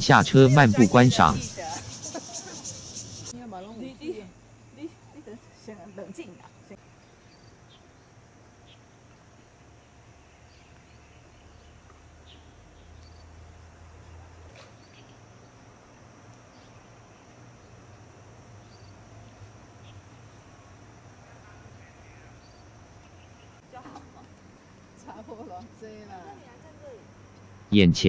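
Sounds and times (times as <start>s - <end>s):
steady high hiss: 0.0s - 14.2s.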